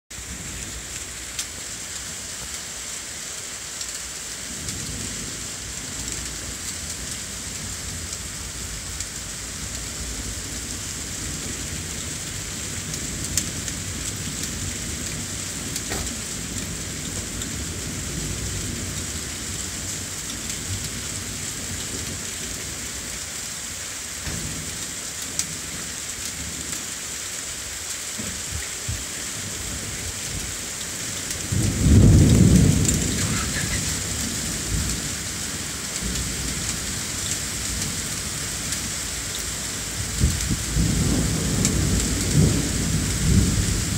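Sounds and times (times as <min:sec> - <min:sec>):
heavy rain: 0:00.1 - 0:43.9
sharp raindrop ticks: 0:00.9 - 0:01.6, 0:12.8 - 0:17.5, 0:35.9 - 0:39.5, 0:40.1 - 0:43.2
thunder rumbling: 0:28.2 - 0:38.8, 0:39.8 - 0:43.9.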